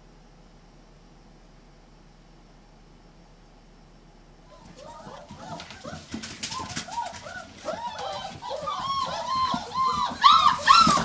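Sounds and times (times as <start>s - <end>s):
puppies whining and squealing: 4.5s - 11.0s.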